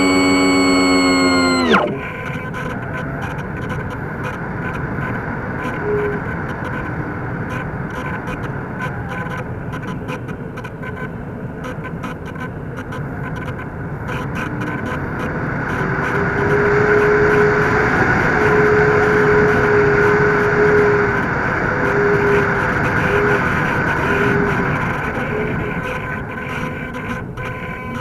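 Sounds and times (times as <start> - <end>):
model plane motor whine: 0.0 - 2.2, 15.7 - 24.7
low steady hum: 0.0 - 2.3.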